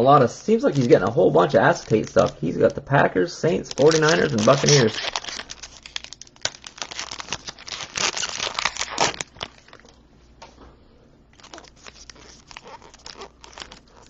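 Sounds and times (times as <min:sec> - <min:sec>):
card wrappers crinkling: 0:00.2 - 0:10.0, 0:11.3 - 0:14.0.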